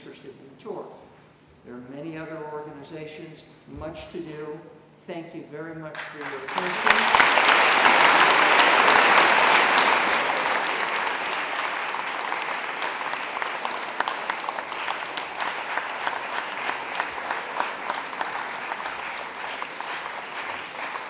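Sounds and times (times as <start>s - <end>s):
audience applauding: 6.0s - 21.0s.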